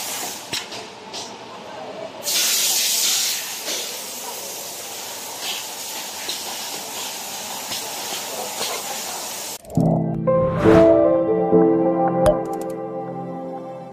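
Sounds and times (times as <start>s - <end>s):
packing machine hiss: 0.0s - 0.6s, 2.2s - 9.6s.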